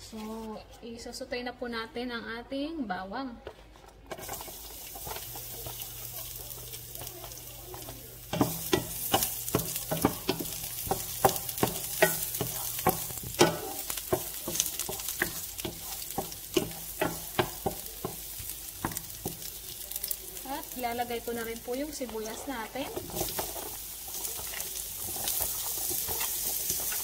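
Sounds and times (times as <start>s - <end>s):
garlic sizzling in oil: 4.1s - 27.0s
wooden spatula knocking on pan: 5.2s - 19.6s.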